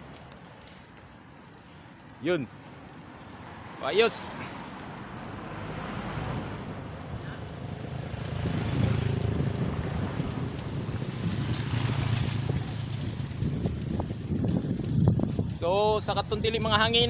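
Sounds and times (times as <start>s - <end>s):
motorcycle engine passing: 5.2s - 15.5s
wind buffeting microphone: 6.4s - 17.0s.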